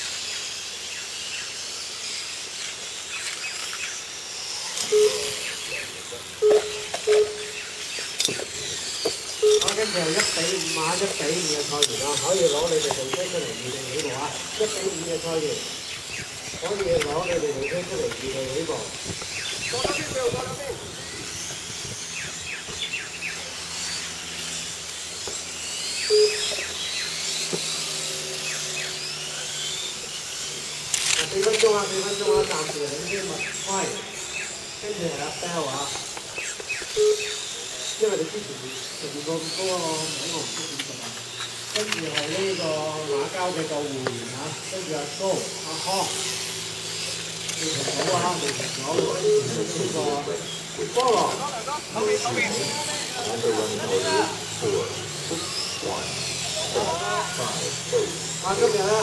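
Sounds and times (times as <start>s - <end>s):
rc motorcycle motors whining: 0.0s - 59.0s
short loud beeps: 6.4s - 7.6s, 9.4s - 9.8s.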